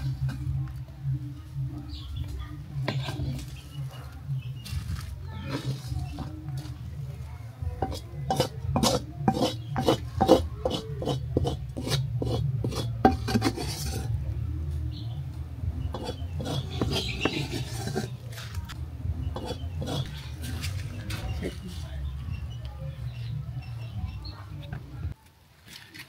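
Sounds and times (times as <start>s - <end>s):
wooden spatula scraping metal pot: 2.8s - 3.6s, 5.4s - 6.3s, 7.8s - 14.2s, 15.9s - 21.8s.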